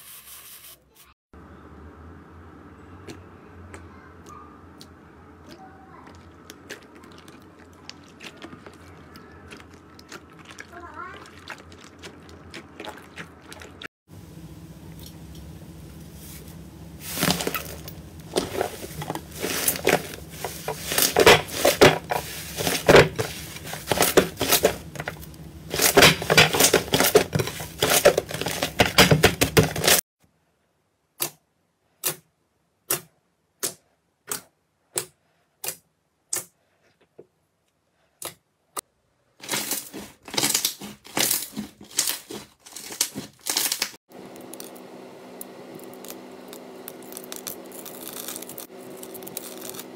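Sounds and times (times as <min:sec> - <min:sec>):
slime crackling and popping: 0:45.8 - 0:49.9.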